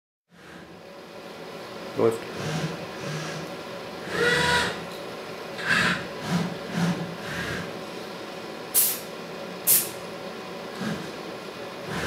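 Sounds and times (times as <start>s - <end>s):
compressed air hisses: 8.8s - 9.1s, 9.7s - 10.0s.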